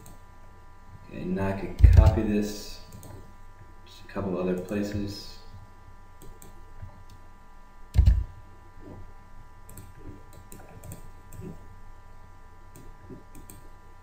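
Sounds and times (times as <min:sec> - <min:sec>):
faint electrical hum: 0:00.0 - 0:14.0
computer mouse and keyboard clicks: 0:02.9 - 0:03.3, 0:09.7 - 0:11.6, 0:12.7 - 0:13.7.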